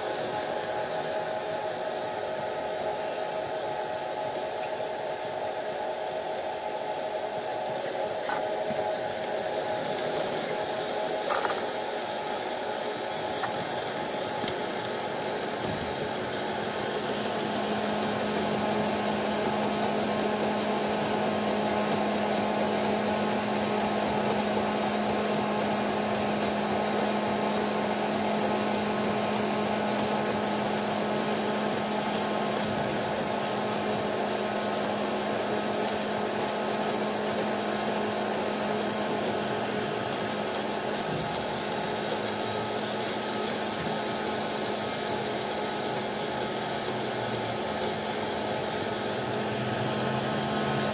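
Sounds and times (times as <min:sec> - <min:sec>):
cooling fans whirring: 0:00.0 - 0:50.9
stepper motors moving: 0:06.8 - 0:17.8, 0:35.4 - 0:50.9.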